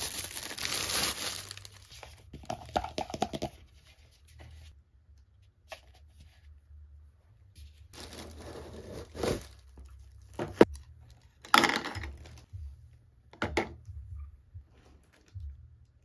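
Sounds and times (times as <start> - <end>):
packaging rustling: 0.0 - 2.0, 8.0 - 9.9.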